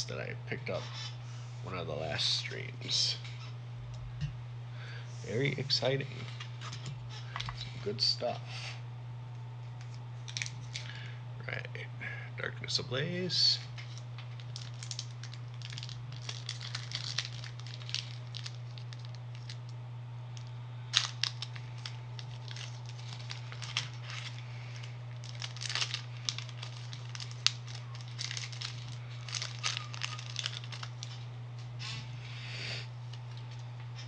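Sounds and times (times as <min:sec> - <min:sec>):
steady low hum: 0:00.0 - 0:34.0
foil wrapper crinkling: 0:09.8 - 0:11.0, 0:13.7 - 0:19.7, 0:20.4 - 0:31.3.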